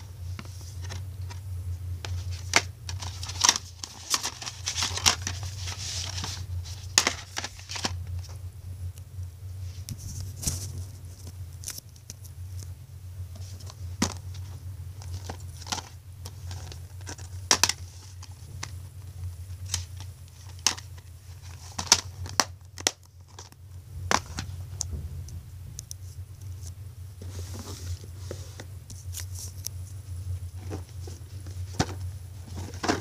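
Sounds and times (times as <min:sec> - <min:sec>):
steady low hum: 0:00.0 - 0:33.0
plastic cases clicking and rustling: 0:02.0 - 0:08.4, 0:13.4 - 0:18.8, 0:19.6 - 0:24.9, 0:30.5 - 0:33.0.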